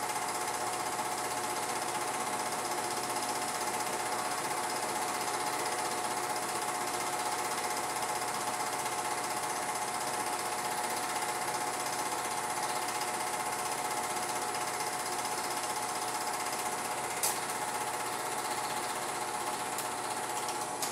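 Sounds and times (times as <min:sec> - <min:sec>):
film projector clattering: 0:00.0 - 0:20.9.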